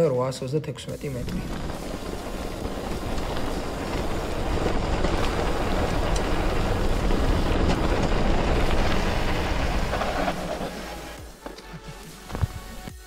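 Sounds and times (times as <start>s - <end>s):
bike tyres rumbling on dirt: 1.2s - 11.6s
bike clicks and rattles: 1.3s - 12.9s.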